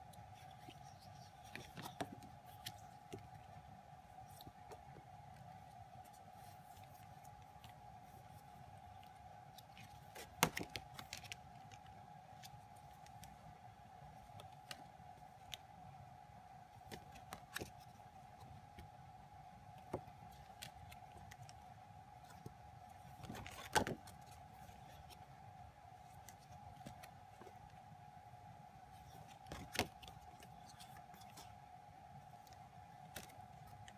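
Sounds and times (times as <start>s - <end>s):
faint high-pitched hum: 0.0s - 33.9s
photo cards tapping and rustling: 0.3s - 3.5s, 9.0s - 13.4s, 16.8s - 18.9s, 22.2s - 25.2s, 26.0s - 27.7s, 29.0s - 31.5s.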